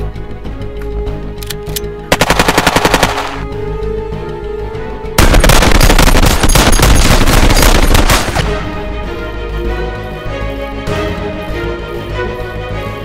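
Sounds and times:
background music: 0.0 - 13.0
automatic gunfire: 2.1 - 3.4, 5.2 - 8.5.

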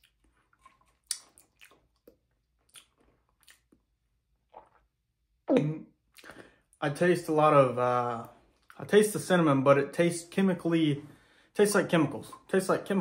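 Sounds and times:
mouth clicks and smacks: 0.0 - 3.9, 4.5 - 4.9, 5.5 - 6.6
person sipping and swallowing: 0.0 - 6.6.

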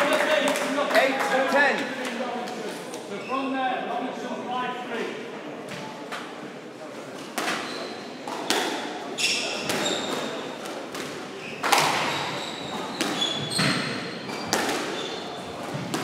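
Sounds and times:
squash ball hitting racquets and walls: 7.2 - 16.0
shoes squeaking on wooden floor: 7.5 - 8.1, 9.2 - 10.5, 11.3 - 16.0.

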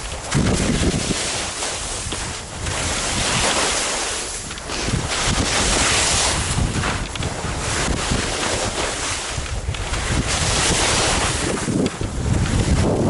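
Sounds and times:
skis scraping across snow: 0.0 - 13.0
wind on microphone: 0.0 - 13.0.

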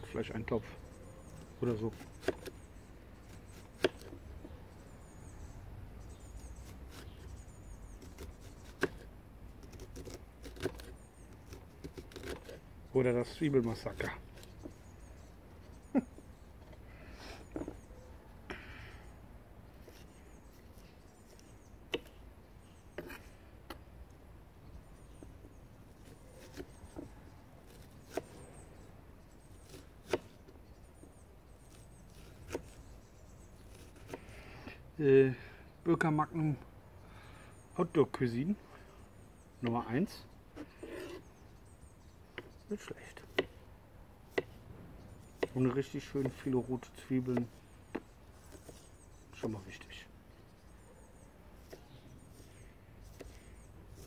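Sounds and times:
knife cutting onion: 1.2 - 4.5, 6.2 - 12.6, 26.1 - 28.5
knife chopping on wooden board: 1.9 - 2.5, 3.8 - 4.2, 21.9 - 22.1, 43.3 - 43.6, 44.3 - 44.6, 45.4 - 46.4.

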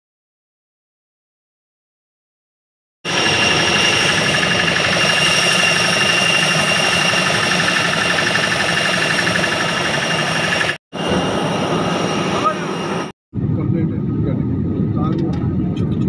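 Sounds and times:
jet turbine rush and whine: 3.1 - 16.0.

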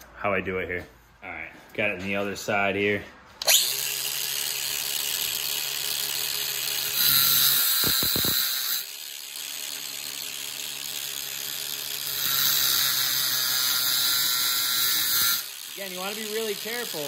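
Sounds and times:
angle grinder cutting metal: 3.4 - 17.0.

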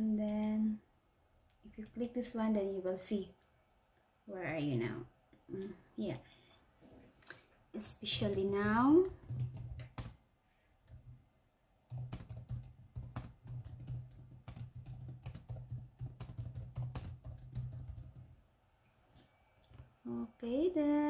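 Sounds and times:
computer keyboard typing: 8.0 - 10.2, 11.9 - 18.3.

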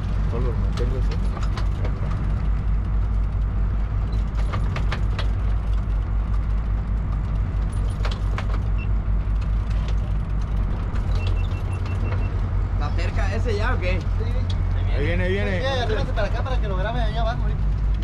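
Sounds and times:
sharp clicks or knocks: 4.2 - 8.7
boat engines droning: 8.7 - 18.0.

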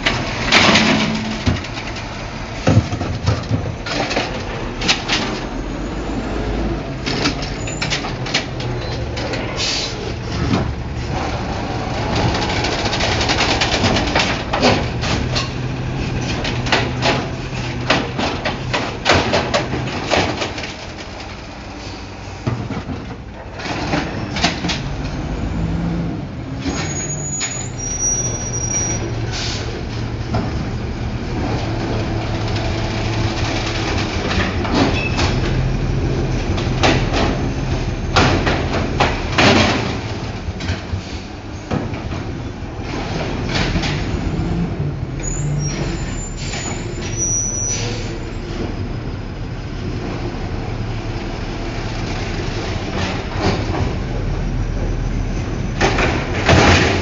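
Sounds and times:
trash cart banging against hopper: 0.0 - 5.6, 6.5 - 48.8, 52.0 - 55.0, 55.6 - 57.0
garbage truck engine running: 0.0 - 57.0.

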